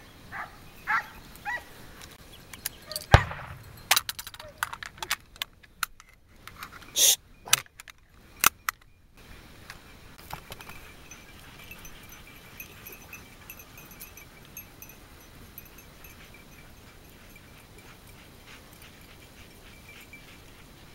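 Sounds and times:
outdoor background: 0.0 - 20.9
dog collar bells jingling: 2.5 - 5.1, 10.4 - 20.9.

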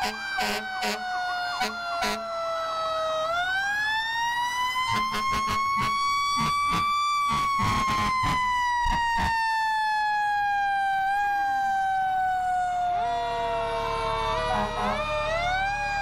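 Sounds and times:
fire engine siren wailing: 0.0 - 16.0
second siren climbing: 0.0 - 16.0
short siren blasts: 0.0 - 16.0.

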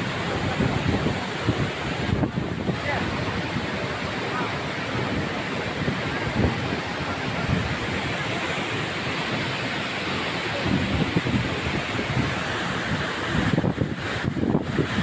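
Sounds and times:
wind buffeting microphone: 0.0 - 8.4, 10.5 - 15.0
waterfall rushing onto rocks: 0.0 - 15.0.

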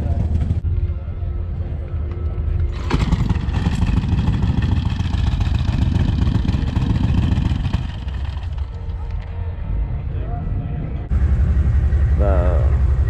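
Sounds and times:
vehicle engine running loudly: 2.6 - 9.4, 10.9 - 13.0.

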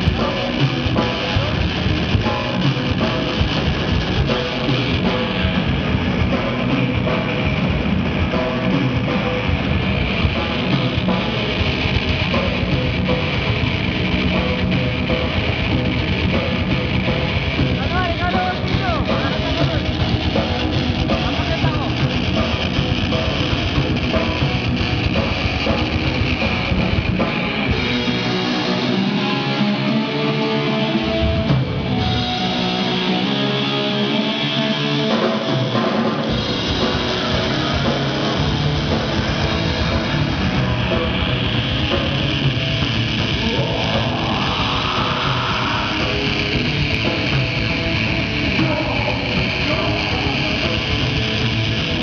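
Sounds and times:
drum kit: 0.0 - 52.0
electric guitar: 0.0 - 52.0
rock band playing: 0.0 - 52.0
rising glide: 26.5 - 48.0.

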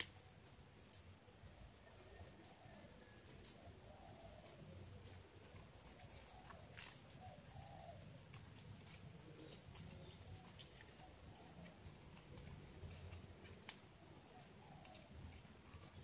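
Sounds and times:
paper crinkling and clicking: 0.0 - 1.2, 1.8 - 16.0.

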